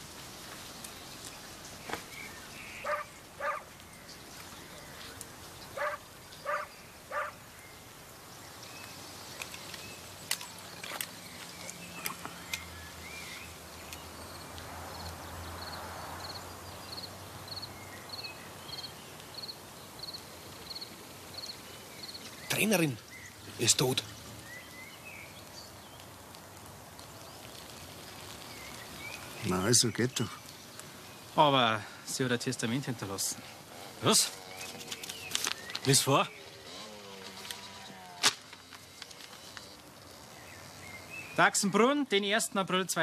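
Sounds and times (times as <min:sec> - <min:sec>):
animal calling: 0:02.6 - 0:03.7, 0:05.6 - 0:07.5, 0:33.3 - 0:41.4.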